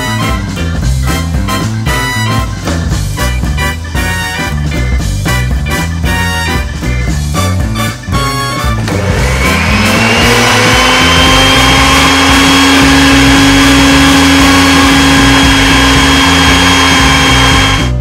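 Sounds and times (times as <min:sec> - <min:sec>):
beaters churning thick batter: 0:08.8 - 0:18.0
electric hand mixer whining: 0:08.8 - 0:18.0.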